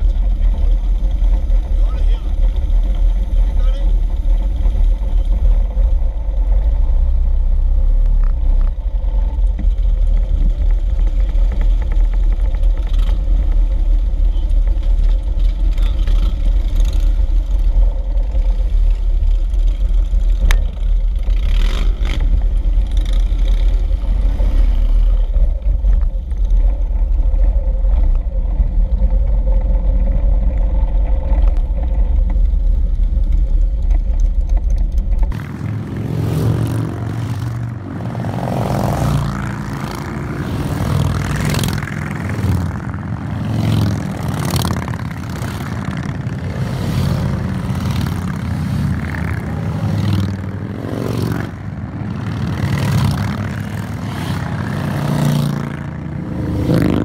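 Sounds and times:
motorcycles idling: 0:00.0 - 0:57.0.

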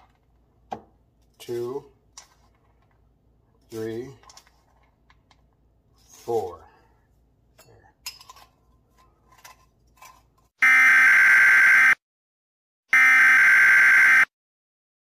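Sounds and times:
loud buzzing test tone: 0:10.6 - 0:12.0, 0:12.9 - 0:14.3.

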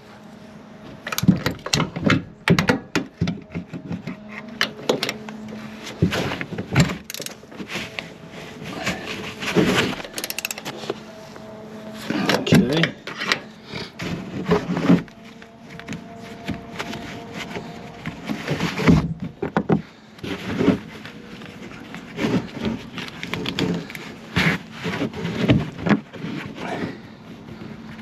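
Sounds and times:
metal parts knocking and clinking: 0:07.0 - 0:07.4, 0:09.9 - 0:10.7.

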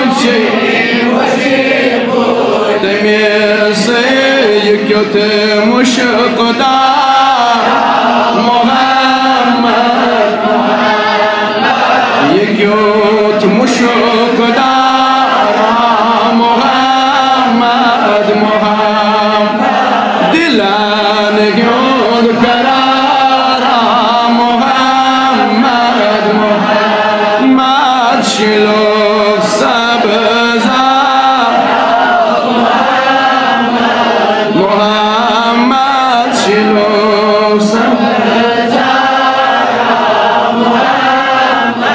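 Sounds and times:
man chanting devotional song: 0:00.0 - 0:41.9.

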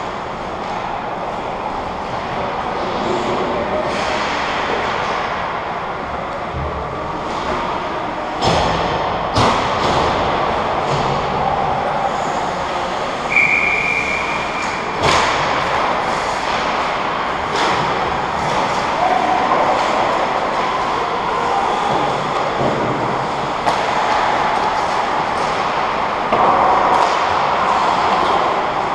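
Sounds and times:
hockey sticks and puck knocks: 0:08.4 - 0:11.4, 0:14.0 - 0:21.0, 0:22.0 - 0:28.7
short whistle: 0:13.3 - 0:14.8.

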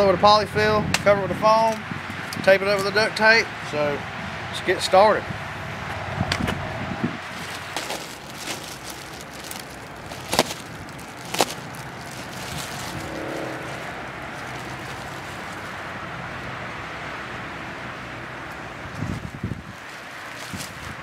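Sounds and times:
handling stuffing and plastic bag: 0:07.2 - 0:16.1, 0:18.8 - 0:21.0.

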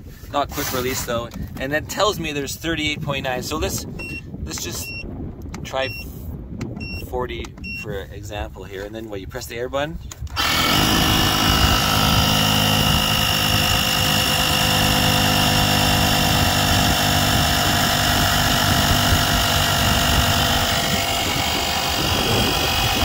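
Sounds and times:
air compressor running: 0:10.4 - 0:23.0.

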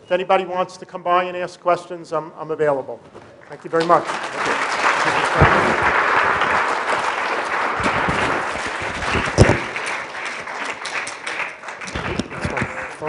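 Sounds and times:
students applauding: 0:03.8 - 0:13.0.

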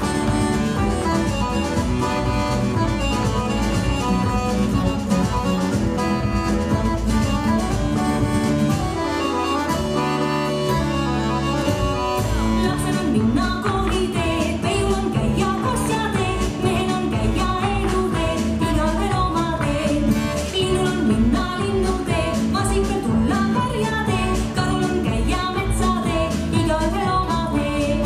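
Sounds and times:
folk dance music: 0:00.0 - 0:28.0
person singing: 0:12.4 - 0:28.0.

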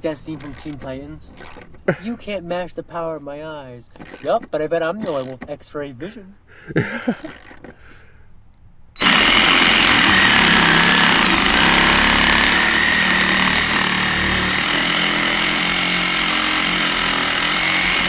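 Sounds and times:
reciprocating saw cutting metal: 0:09.0 - 0:18.0.

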